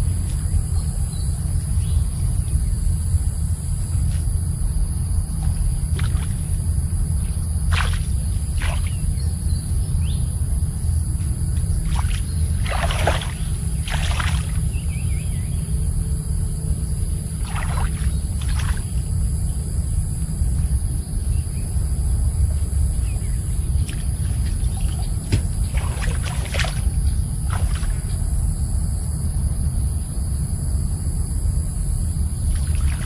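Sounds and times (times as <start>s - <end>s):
steady low rumble: 0.0s - 33.0s
water splashing and sloshing: 5.4s - 6.5s, 7.7s - 9.1s, 11.8s - 14.6s, 17.4s - 19.0s, 23.8s - 28.2s, 32.5s - 33.0s.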